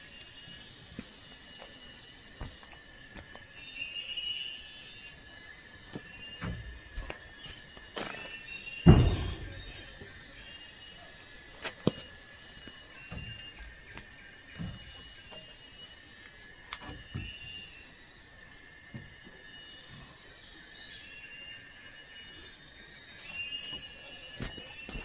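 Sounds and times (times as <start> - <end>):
insects and birds chirping: 0.0 - 25.0
insects droning: 0.0 - 25.0
knocks and thuds on wood: 8.8 - 10.0.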